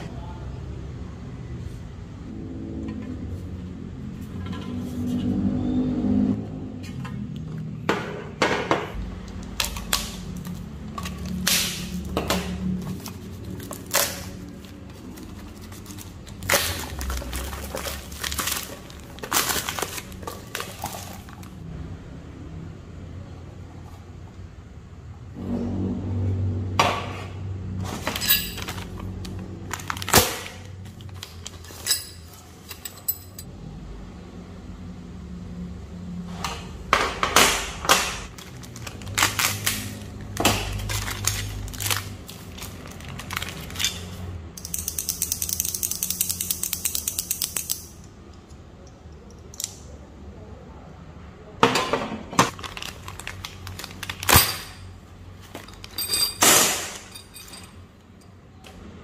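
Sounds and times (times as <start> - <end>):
plastic bags crinkling: 12.9 - 21.6, 28.6 - 31.8, 38.3 - 44.3, 52.5 - 54.5
small parts knocking and clicking: 37.2 - 49.9
plastic bag tearing: 38.3 - 43.8, 52.5 - 54.5.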